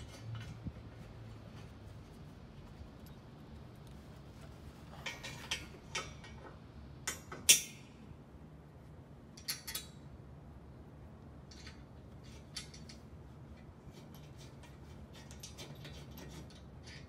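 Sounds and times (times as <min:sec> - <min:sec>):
metallic clicks of bolts and nuts: 0:05.0 - 0:08.0, 0:09.3 - 0:10.1, 0:11.4 - 0:17.0.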